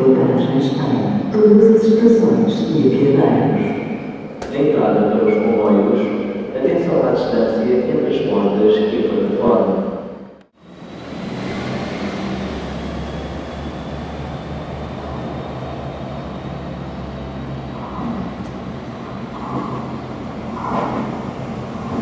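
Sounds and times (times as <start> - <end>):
electric train rumble and hum: 10.3 - 22.0.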